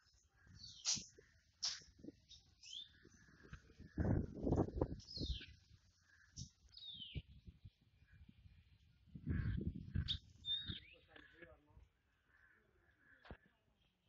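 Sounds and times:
birds whistling: 0.5 - 3.3, 6.3 - 7.2, 10.0 - 11.2.

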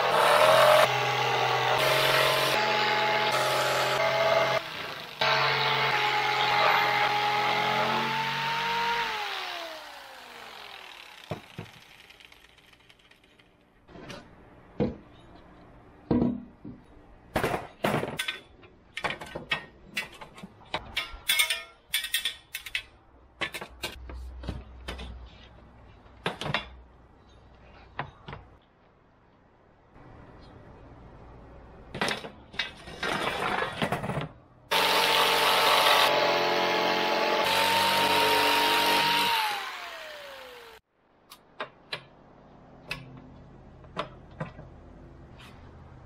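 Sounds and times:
jigsaw motor winding down: 0.0 - 13.1, 34.7 - 40.8.

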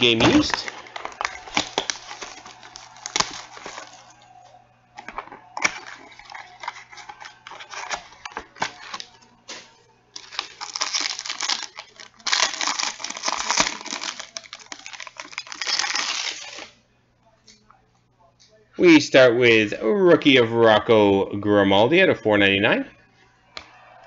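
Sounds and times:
wrapper crinkling and tearing: 0.0 - 4.3, 5.0 - 16.8.

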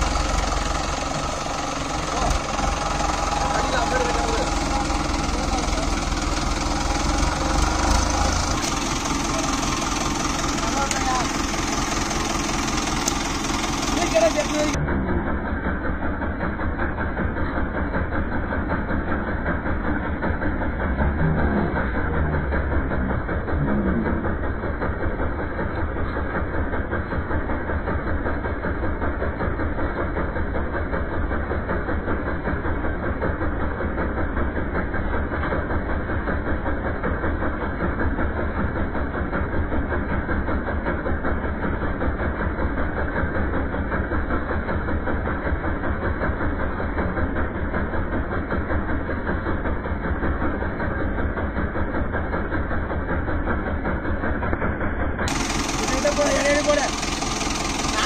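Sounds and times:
tractor diesel engine idling: 0.0 - 58.0.

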